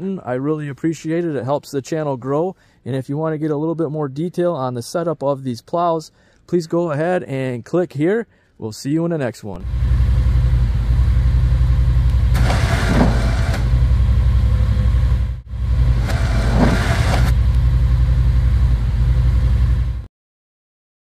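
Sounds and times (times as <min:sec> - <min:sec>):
engine idling: 0:09.6 - 0:20.1.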